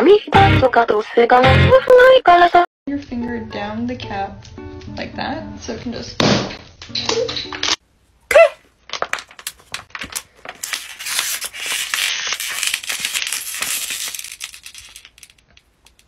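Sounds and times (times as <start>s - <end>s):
plastic bottle crackling: 8.8s - 16.0s.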